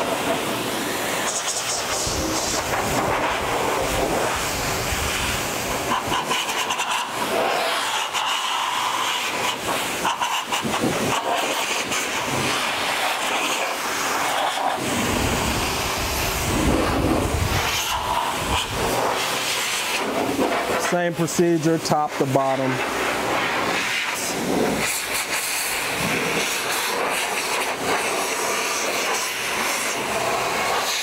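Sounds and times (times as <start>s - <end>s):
car dryer blowing air: 0.0s - 31.0s
low rumble of air: 14.8s - 19.2s.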